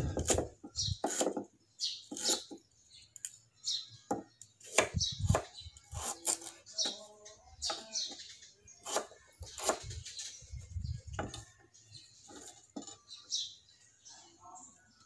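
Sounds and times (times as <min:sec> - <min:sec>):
knife chopping on wooden block: 0:00.0 - 0:01.5, 0:02.1 - 0:02.6, 0:04.1 - 0:07.0, 0:08.8 - 0:09.8
small birds chirping: 0:00.0 - 0:15.0.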